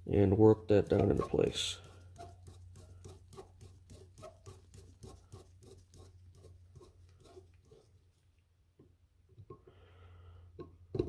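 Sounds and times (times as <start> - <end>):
screwdriver clicking and scraping: 0.8 - 1.5.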